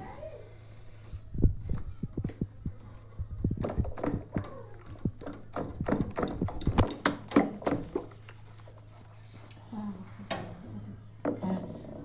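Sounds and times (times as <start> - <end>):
low steady hum: 0.0 - 12.0
sharp taps and knocks: 5.1 - 8.1.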